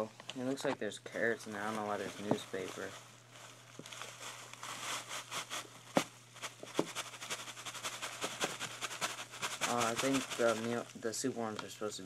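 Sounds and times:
newspaper rustling: 1.4 - 11.0.

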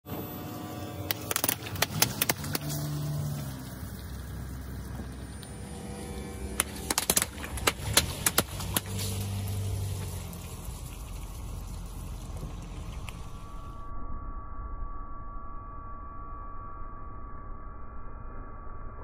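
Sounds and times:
car engine humming: 0.0 - 13.9
water balloons popping: 1.1 - 3.7, 6.5 - 13.3.

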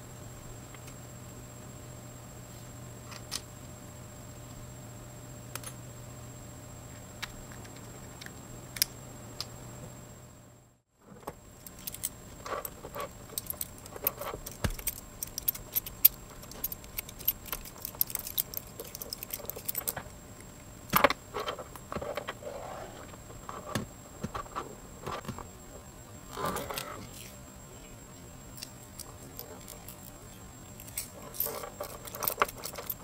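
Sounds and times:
bicycle chain links clinking: 13.3 - 20.0, 30.8 - 33.0.

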